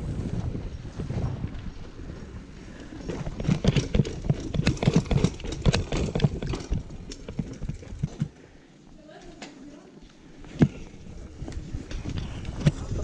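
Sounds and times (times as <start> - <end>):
wind and tyre rush: 0.0 - 8.4, 10.2 - 13.0
bike clattering over steps: 3.0 - 8.4.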